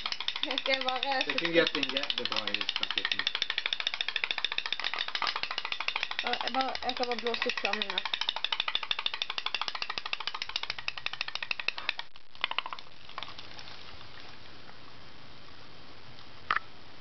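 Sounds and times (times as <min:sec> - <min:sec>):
toy steam boat engine popping: 0:00.0 - 0:12.9.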